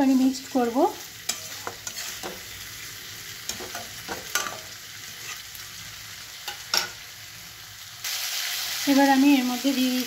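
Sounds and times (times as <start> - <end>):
food sizzling: 0.0 - 10.0
metal spatula scraping pan: 1.2 - 2.6, 3.4 - 5.6.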